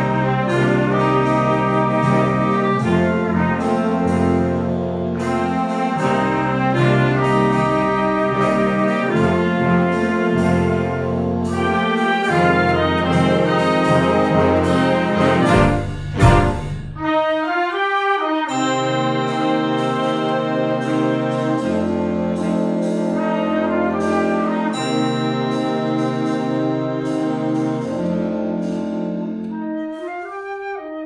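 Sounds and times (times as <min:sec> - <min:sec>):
concert band playing slow blues: 0:00.0 - 0:16.6.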